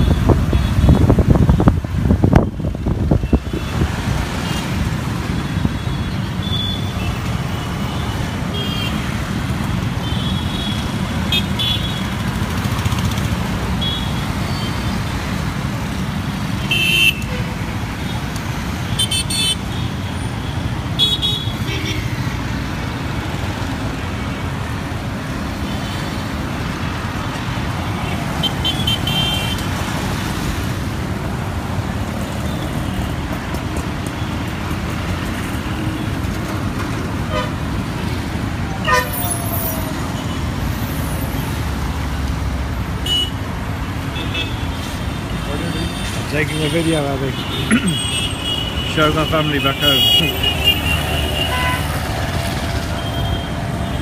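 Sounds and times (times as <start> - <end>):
traffic engines rumbling: 0.0 - 54.0
vehicle horn toots: 37.3 - 37.6, 38.8 - 39.4.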